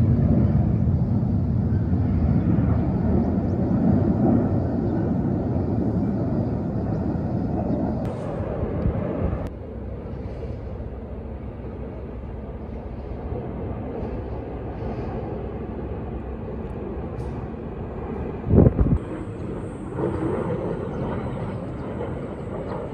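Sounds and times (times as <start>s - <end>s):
distant jet rumble: 0.0s - 22.9s.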